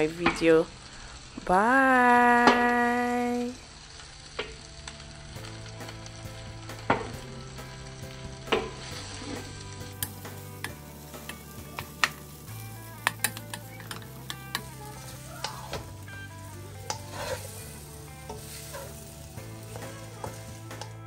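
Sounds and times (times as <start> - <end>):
food sizzling in oil: 0.0 - 21.0
wooden spatula scraping pan: 8.5 - 9.6, 16.8 - 20.6.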